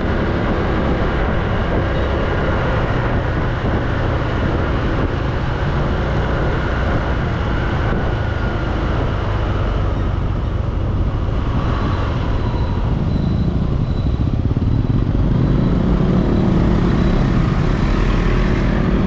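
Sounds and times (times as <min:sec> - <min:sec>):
other vehicles passing: 0:00.0 - 0:19.0
road noise: 0:00.0 - 0:19.0.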